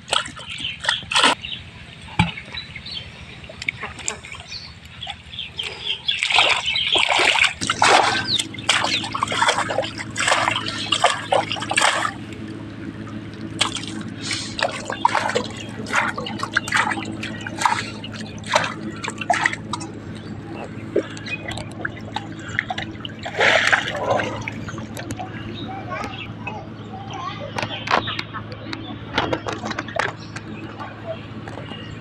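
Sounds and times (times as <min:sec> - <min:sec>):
steady low hum: 0:00.0 - 0:32.0
hands splashing in muddy water: 0:05.6 - 0:12.2, 0:13.6 - 0:19.8, 0:20.6 - 0:25.2.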